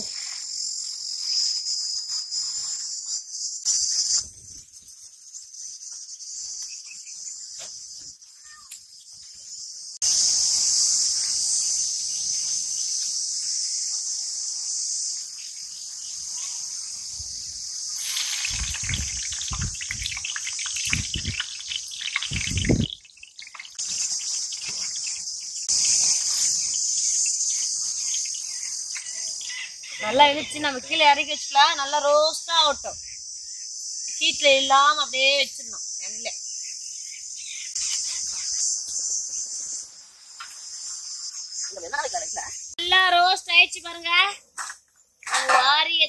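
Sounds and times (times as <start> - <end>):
insect chorus: 0.0 - 46.0
oil sizzling deep-frying: 17.2 - 29.2.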